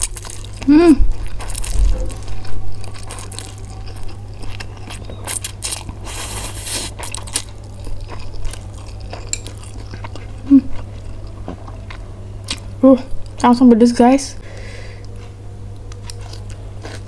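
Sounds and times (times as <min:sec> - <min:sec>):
wet chewing and lip smacks: 0:01.3 - 0:13.4.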